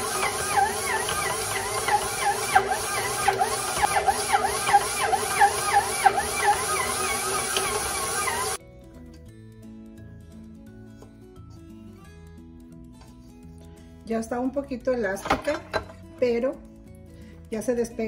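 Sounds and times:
stand mixer motor whining: 0:00.0 - 0:08.6.

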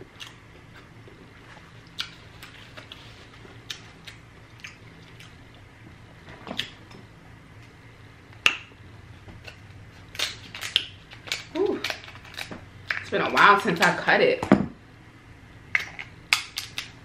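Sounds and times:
crab leg clicks and cracks: 0:09.4 - 0:13.1.

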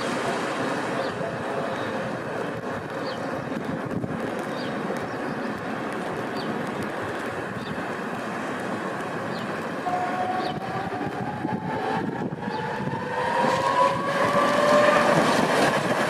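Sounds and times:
street and traffic noise: 0:00.0 - 0:16.0
tram traction drive whine: 0:00.0 - 0:16.0.

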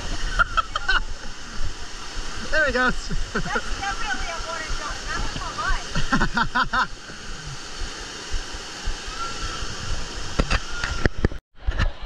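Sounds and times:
voices: 0:02.4 - 0:06.2.

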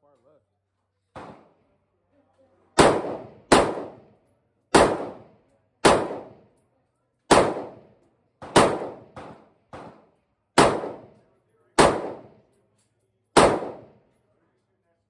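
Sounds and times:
pistol gunshots with echo: 0:02.8 - 0:06.5, 0:07.3 - 0:12.5, 0:13.4 - 0:14.0.

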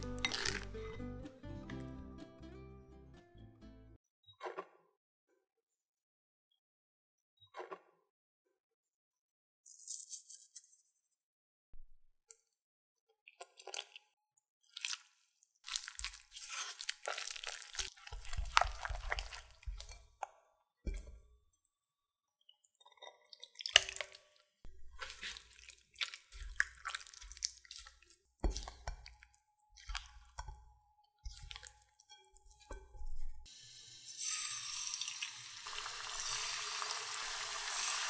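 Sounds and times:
batter squelching while stirred: 0:00.0 - 0:00.9, 0:14.7 - 0:20.3, 0:23.2 - 0:33.5.

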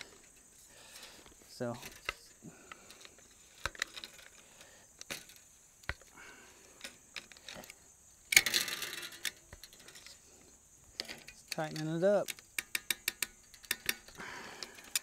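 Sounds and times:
tensioning tool ratchet clicking: 0:11.0 - 0:15.0.

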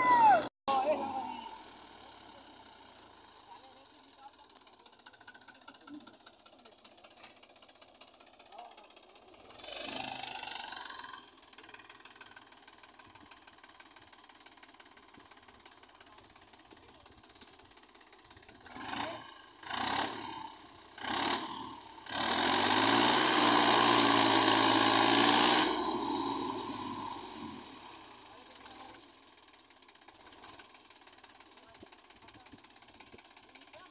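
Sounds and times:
tractor diesel engine: 0:00.0 - 0:33.9.

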